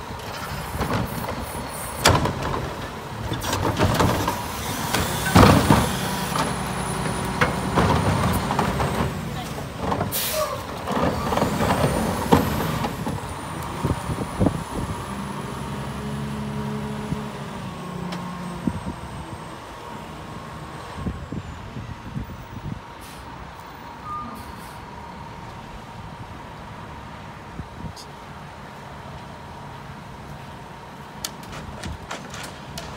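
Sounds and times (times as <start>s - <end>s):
diesel truck engine: 0.0s - 32.9s
cart banging against hopper: 0.2s - 13.2s.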